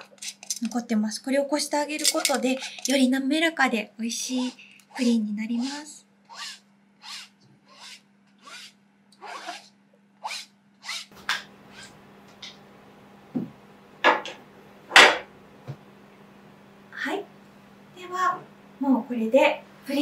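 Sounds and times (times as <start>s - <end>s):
metal utensils clicking and knocking: 0.0s - 0.8s, 1.9s - 3.0s.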